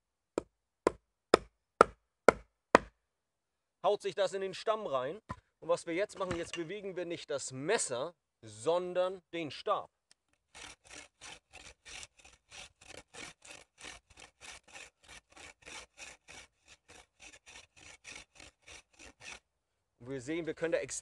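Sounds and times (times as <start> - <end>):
knife scraping bark off stick: 10.5 - 19.4.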